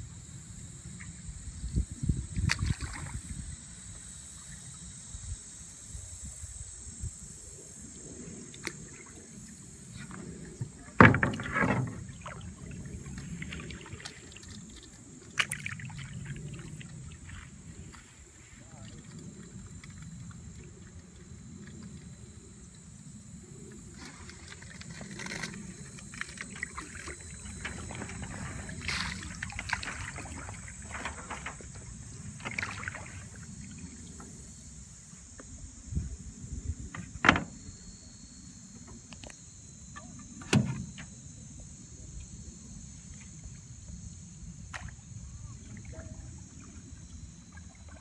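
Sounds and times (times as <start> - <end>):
paddle splashing and dripping: 2.2 - 5.2, 8.3 - 35.4, 40.0 - 48.0.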